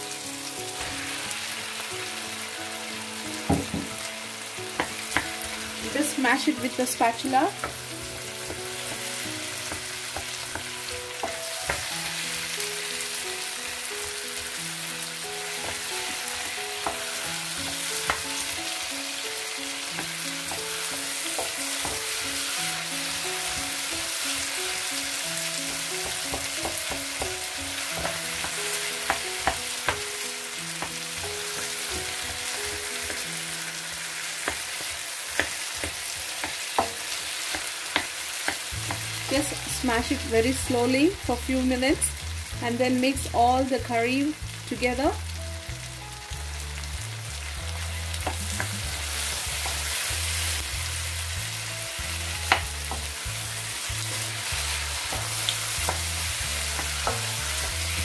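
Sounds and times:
food sizzling in a wok: 0:00.0 - 0:58.0
wooden spatula mashing and stirring: 0:19.8 - 0:24.5, 0:30.8 - 0:40.3.

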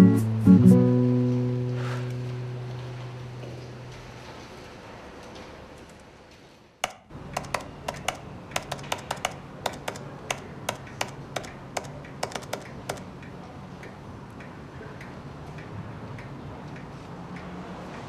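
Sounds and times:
laptop keyboard key clicks: 0:06.8 - 0:13.0.

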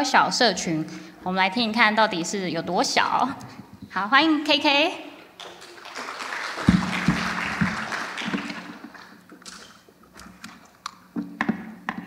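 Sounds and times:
audience applause: 0:05.4 - 0:09.2.

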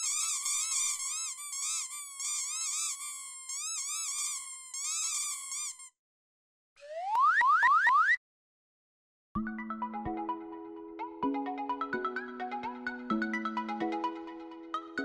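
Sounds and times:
rubber duck toys squeaking: 0:00.0 - 0:06.0.

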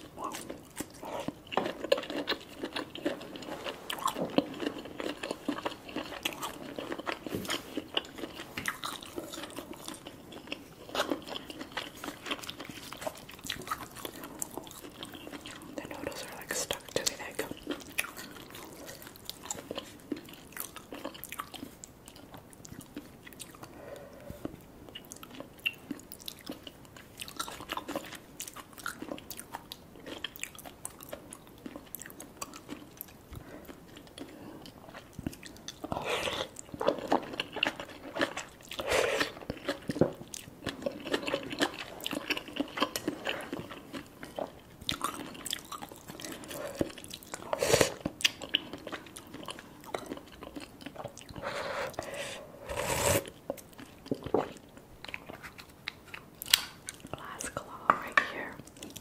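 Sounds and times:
person chewing and slurping noodles: 0:00.0 - 0:57.6.

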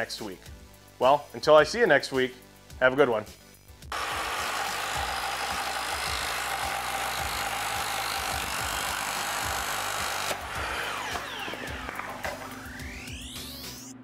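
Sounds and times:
belt sander on wood: 0:03.9 - 0:12.3.

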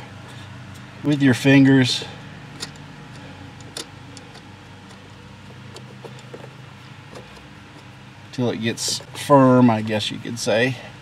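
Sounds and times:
clicks of turning adjusting nut: 0:02.6 - 0:05.0, 0:05.6 - 0:07.9.

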